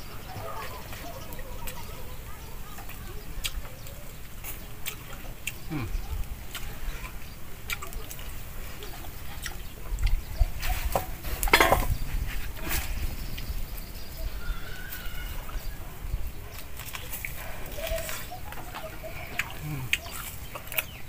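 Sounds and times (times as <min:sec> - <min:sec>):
wet chewing smacks: 0:02.7 - 0:11.3, 0:16.4 - 0:21.0
faint bird call: 0:13.4 - 0:15.9.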